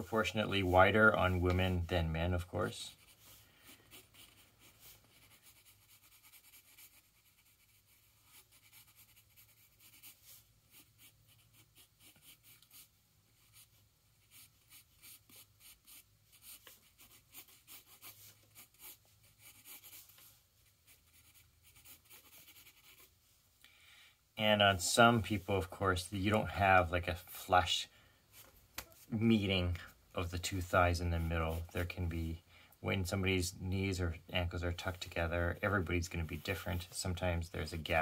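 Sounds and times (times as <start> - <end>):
pencil scratching on paper: 2.9 - 23.2.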